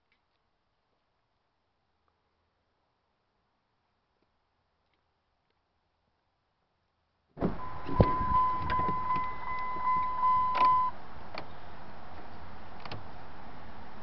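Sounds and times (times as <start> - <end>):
electronic warning chime: 7.6 - 11.0.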